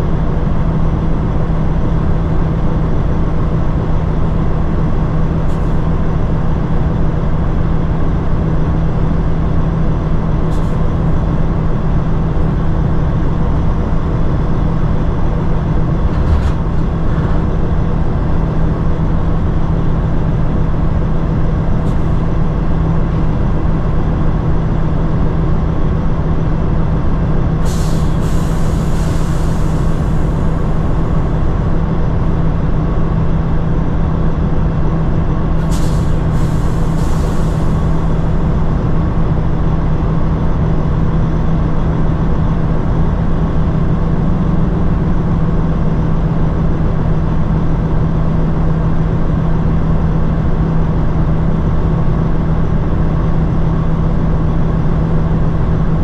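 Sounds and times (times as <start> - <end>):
diesel engine idling: 0.0 - 41.0
air hiss: 27.6 - 30.9, 35.6 - 38.3.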